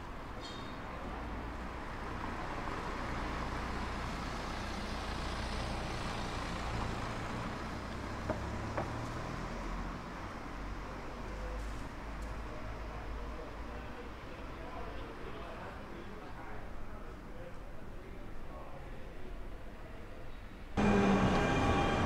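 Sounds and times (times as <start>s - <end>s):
vehicle passing with road noise: 0.9s - 14.7s.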